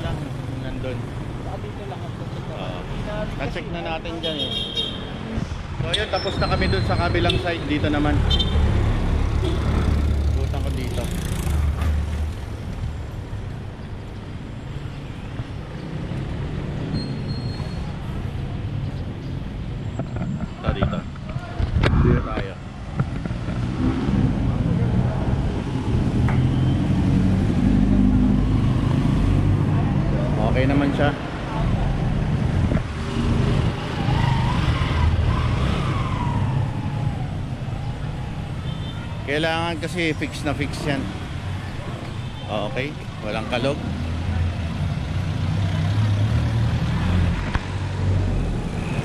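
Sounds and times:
road traffic rumble: 0.0s - 49.0s
siren wailing: 33.9s - 38.7s.

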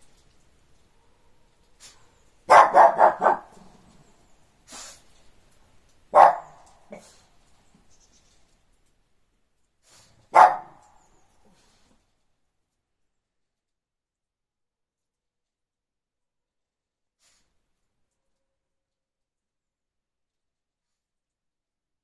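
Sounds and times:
small dog barking: 0.9s - 4.0s, 6.1s - 7.2s, 10.2s - 11.0s.

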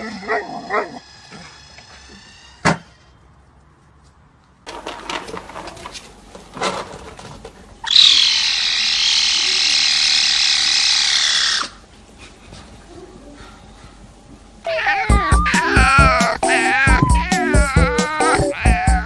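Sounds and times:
kitten hissing: 14.7s - 19.0s.

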